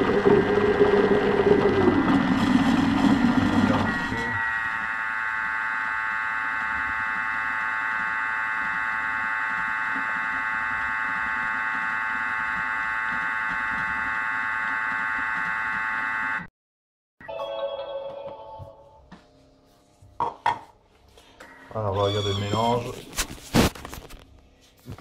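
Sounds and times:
food processor motor whining: 0.0 - 16.5.

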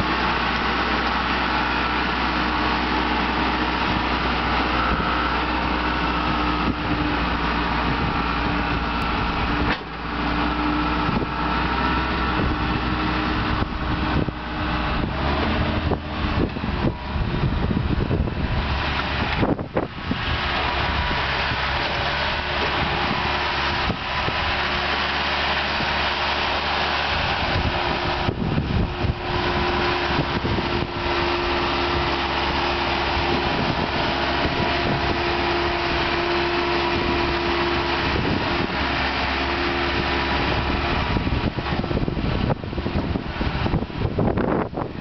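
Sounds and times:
loader engine running under load: 0.0 - 45.0
steady whine: 0.0 - 45.0.

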